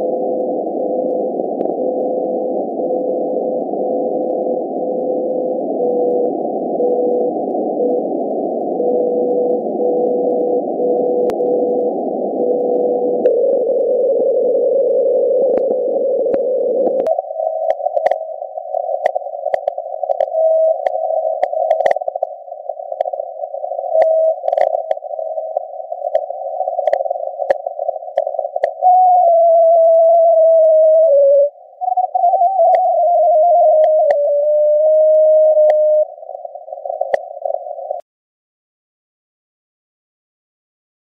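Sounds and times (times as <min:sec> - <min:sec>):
lightning static clicks: 0:00.0 - 0:28.8, 0:31.8 - 0:38.0
radio hiss: 0:00.0 - 0:38.0.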